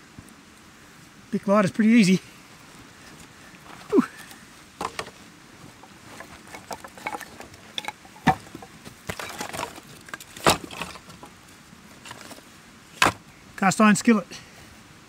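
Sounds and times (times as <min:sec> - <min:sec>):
firewood sticks knocking together: 0:04.2 - 0:05.2, 0:05.8 - 0:11.4, 0:13.0 - 0:13.2.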